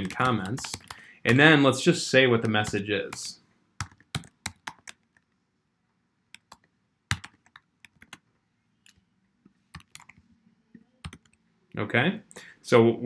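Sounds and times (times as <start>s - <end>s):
computer keyboard typing: 0.0s - 1.5s, 2.4s - 5.4s, 6.3s - 9.0s, 9.7s - 10.3s, 11.0s - 11.4s.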